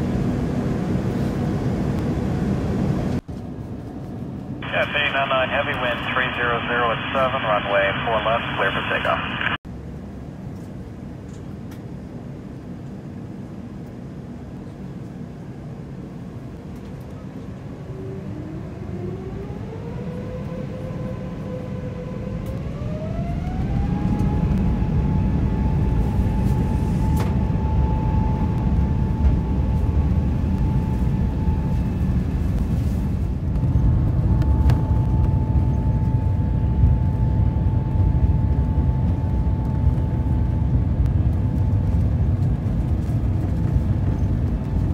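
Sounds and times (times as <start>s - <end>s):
low rumble of takeoff roll: 0.0s - 44.9s
jet engines whining: 4.4s - 9.6s, 15.8s - 44.9s.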